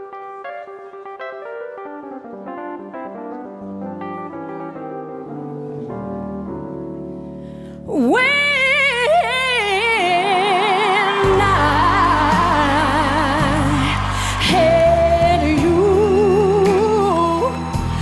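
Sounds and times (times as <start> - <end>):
piano playing slow chords: 0.0 - 8.9
woman singing with vibrato: 7.9 - 18.0.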